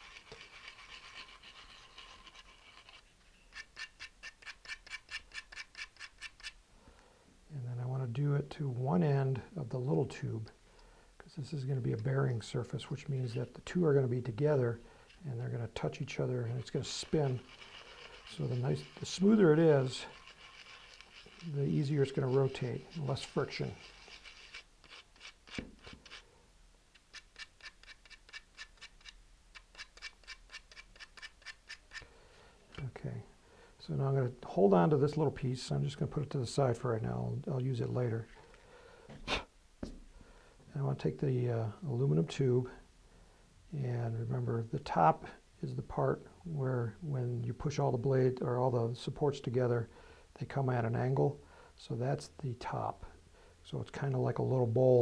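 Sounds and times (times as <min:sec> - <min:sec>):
metal tube sanding: 0:15.9 - 0:26.2.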